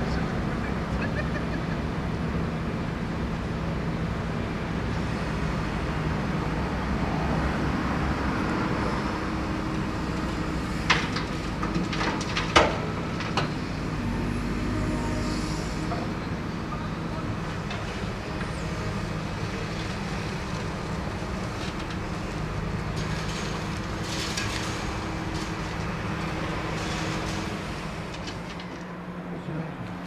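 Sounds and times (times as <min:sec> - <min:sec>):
diesel engines running: 0:00.0 - 0:30.0.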